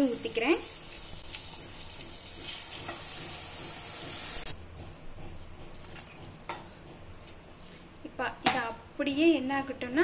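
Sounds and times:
water sizzling in hot pan: 0:00.0 - 0:04.5.

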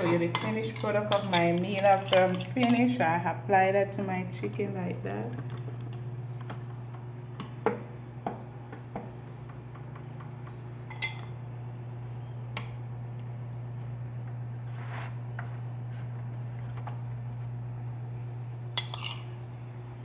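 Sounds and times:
utensil tapping bowl and foil pan: 0:00.0 - 0:03.0
steady low hum: 0:00.0 - 0:20.0.

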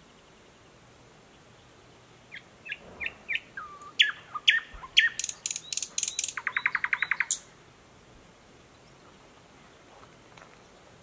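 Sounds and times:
bird singing: 0:00.0 - 0:07.5.

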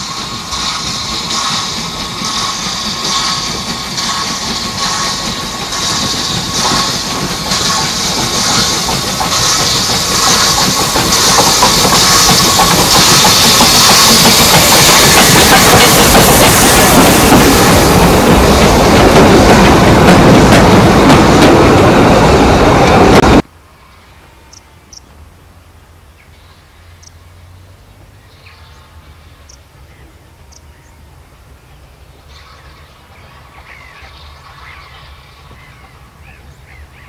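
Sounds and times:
train wheels clacking on rails: 0:00.0 - 0:23.5
steam locomotive exhaust beats: 0:00.0 - 0:37.0.

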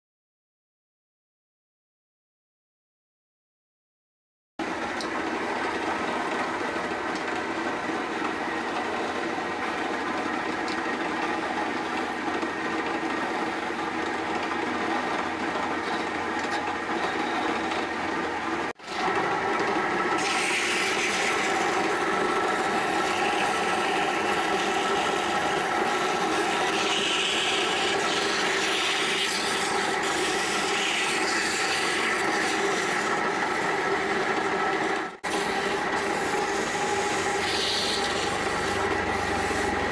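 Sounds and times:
wood lathe motor humming: 0:05.1 - 0:39.9
chisel scraping spinning wood: 0:05.3 - 0:39.9
sandpaper hissing on spinning wood: 0:35.3 - 0:39.8.

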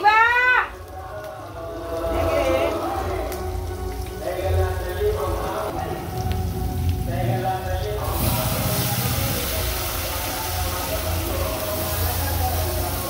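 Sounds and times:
onions sizzling in hot oil: 0:00.0 - 0:13.0
dry lentils poured into hot oil: 0:07.9 - 0:13.0.

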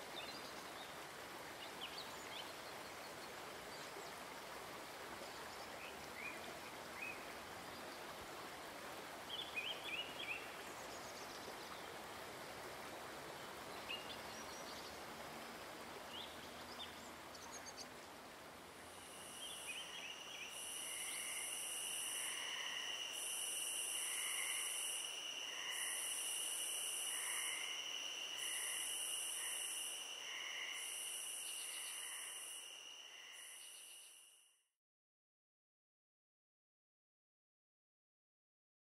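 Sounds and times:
steady background hiss: 0:00.0 - 0:34.5
insect chorus trilling: 0:18.9 - 0:34.5.

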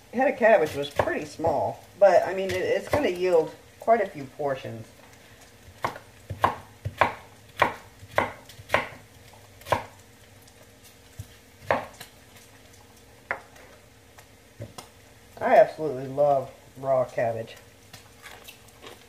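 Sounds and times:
knife chopping cabbage on wood: 0:05.8 - 0:09.0, 0:09.6 - 0:10.0, 0:11.2 - 0:12.1.

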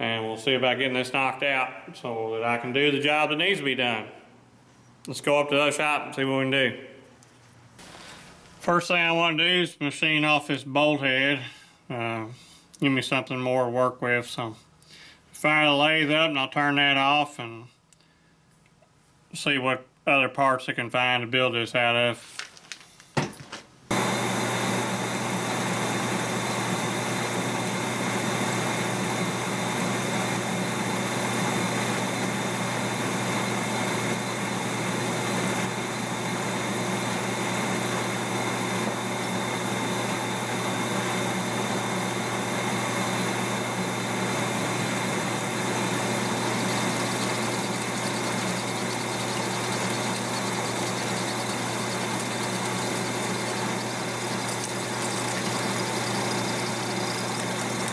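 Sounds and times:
metal lathe motor hum: 0:23.9 - 0:37.3, 0:43.2 - 0:57.9.

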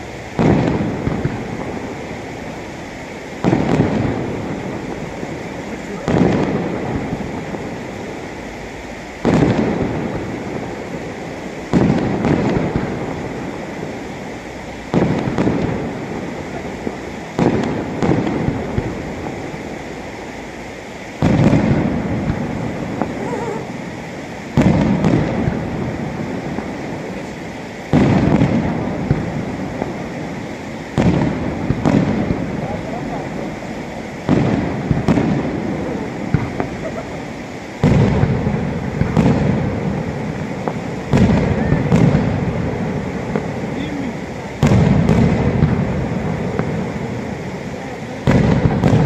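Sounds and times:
firework crackles: 0:00.0 - 0:49.0
firework shells booming: 0:00.0 - 0:49.0.

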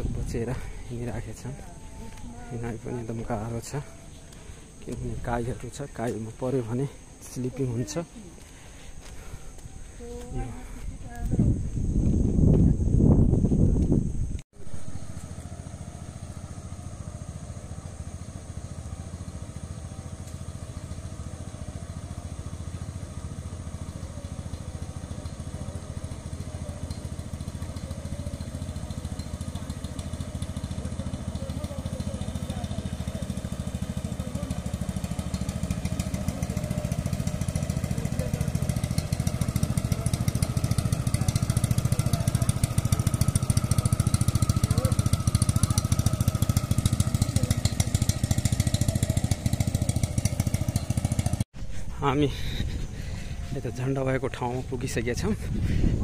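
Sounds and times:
boat motor running: 0:00.0 - 0:11.4, 0:14.6 - 0:56.0.

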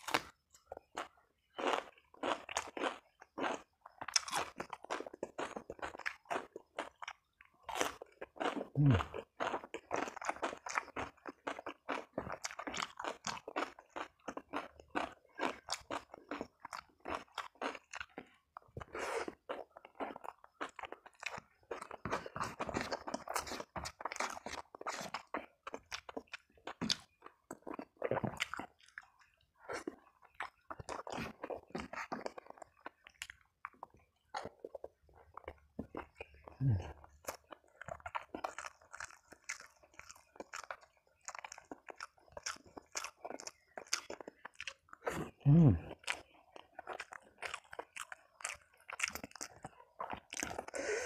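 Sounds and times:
person chewing and crunching: 0:00.0 - 0:51.0
wet mouth sounds: 0:08.6 - 0:09.2, 0:44.7 - 0:46.2.

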